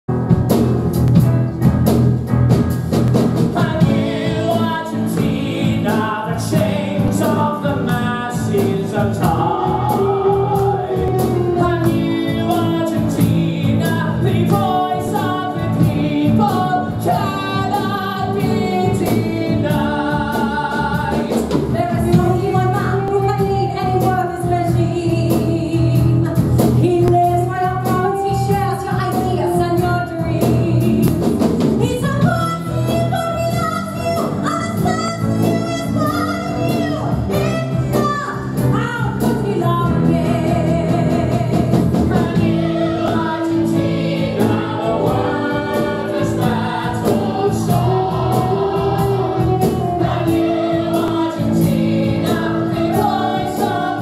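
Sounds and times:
instrumental backing with beat: 0.1s - 54.0s
chorus singing: 3.5s - 25.5s, 39.9s - 54.0s
soloists singing: 3.5s - 25.5s, 39.5s - 54.0s.

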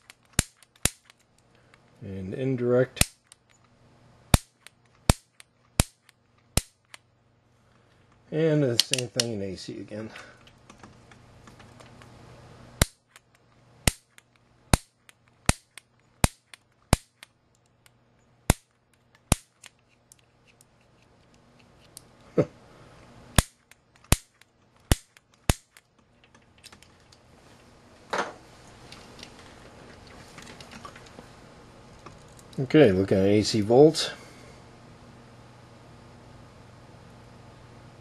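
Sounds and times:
piezo starter snapping: 0.0s - 1.9s, 3.0s - 3.7s, 4.3s - 7.0s, 8.7s - 9.3s, 12.8s - 22.1s, 23.4s - 27.2s.

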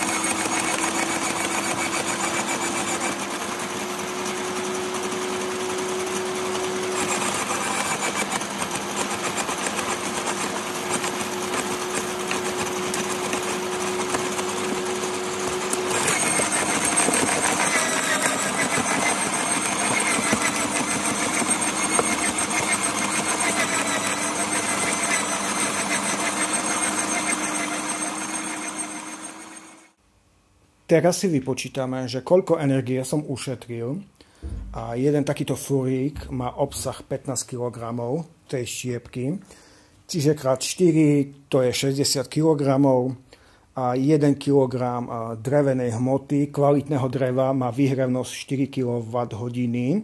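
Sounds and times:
shredder motor whine: 0.0s - 30.0s.

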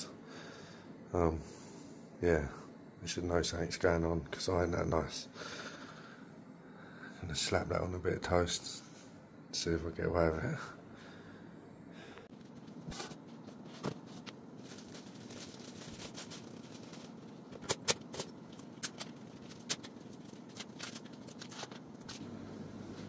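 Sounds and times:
faint room noise: 0.0s - 23.0s.

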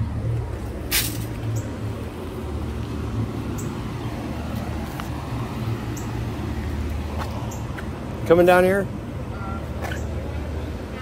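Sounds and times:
low mechanical rumble: 0.0s - 10.9s.

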